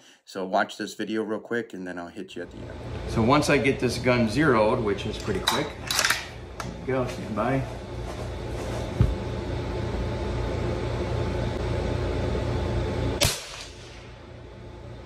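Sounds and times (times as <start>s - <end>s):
steady low hum: 1.9s - 15.0s
rifle shot: 13.2s - 14.1s.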